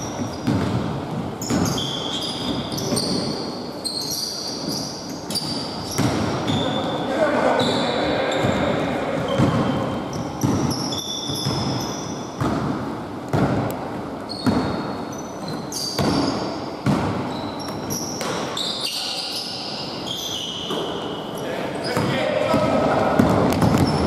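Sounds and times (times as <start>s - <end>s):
sneakers squeaking on wooden floor: 0.0s - 24.0s
basketball bouncing on hardwood: 0.1s - 1.8s, 22.0s - 24.0s.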